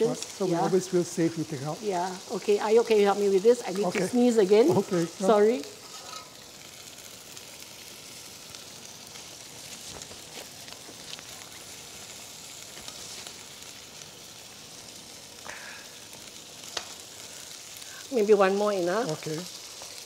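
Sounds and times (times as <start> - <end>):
gravy sizzling in a wok: 0.0 - 20.0
tongs clicking against pan: 16.7 - 17.0.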